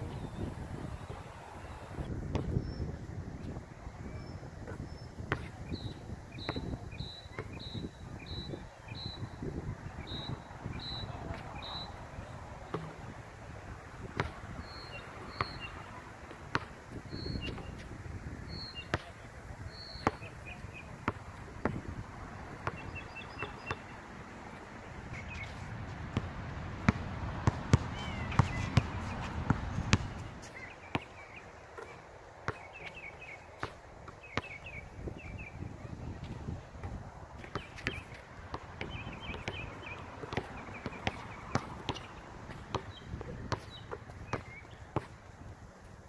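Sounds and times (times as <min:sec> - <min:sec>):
birds chirping: 0:00.0 - 0:03.0, 0:04.1 - 0:13.1, 0:14.6 - 0:16.0, 0:17.0 - 0:17.8, 0:18.5 - 0:21.2, 0:22.5 - 0:25.7, 0:27.8 - 0:36.0, 0:37.4 - 0:45.0
wind rumble on microphone: 0:00.0 - 0:15.2, 0:16.6 - 0:18.7, 0:20.4 - 0:23.0, 0:34.7 - 0:44.4
basketball bouncing on hard court: 0:14.2 - 0:15.6, 0:16.5 - 0:17.8, 0:22.6 - 0:23.8, 0:27.4 - 0:28.9, 0:37.4 - 0:38.1, 0:38.8 - 0:45.1.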